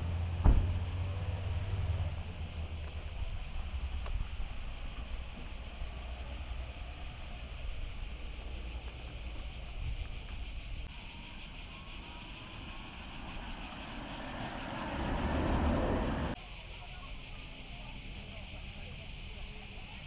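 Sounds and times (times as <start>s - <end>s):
small vehicle approaching: 0.0s - 16.4s
cicadas buzzing: 0.0s - 20.0s
low rumble: 11.3s - 16.4s.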